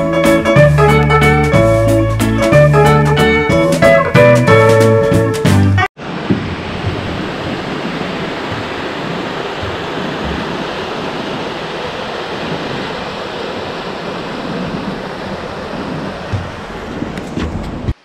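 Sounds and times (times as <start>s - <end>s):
stream rushing over rocks: 6.0s - 18.0s.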